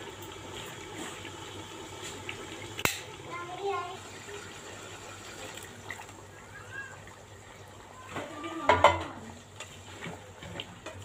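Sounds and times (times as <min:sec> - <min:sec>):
chicken sizzling in oil: 0:00.0 - 0:06.3.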